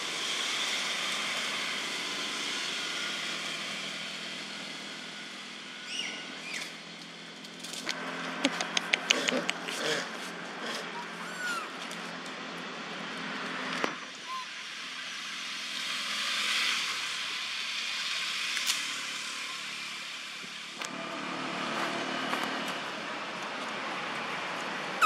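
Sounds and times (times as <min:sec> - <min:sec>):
steady outdoor hiss: 0:00.0 - 0:25.0
monkey high squeaks: 0:10.9 - 0:11.8, 0:14.2 - 0:14.5.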